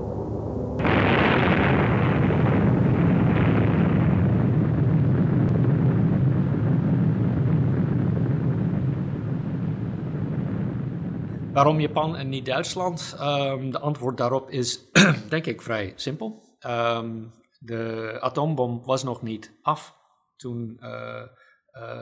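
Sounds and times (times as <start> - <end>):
explosion with low rumble: 0.0 - 13.4.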